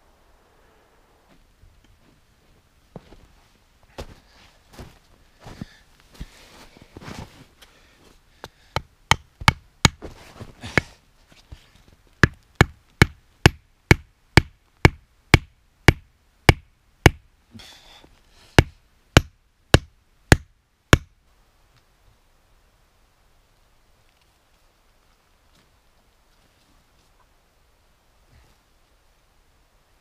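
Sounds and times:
hatchet knocking wooden stake: 8.7s - 10.0s, 12.2s - 17.2s, 18.6s - 21.1s.

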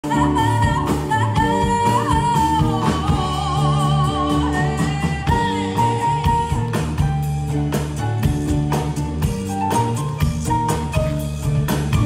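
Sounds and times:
person singing with vibrato: 0.0s - 6.6s
swing band music: 0.0s - 12.0s.

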